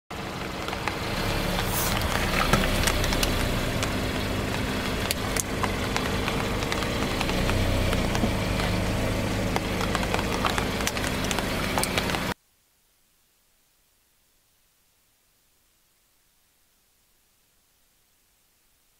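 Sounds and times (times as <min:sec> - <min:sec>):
car engine idling: 0:00.1 - 0:12.4
tyre crushing toy fruits: 0:00.2 - 0:12.4.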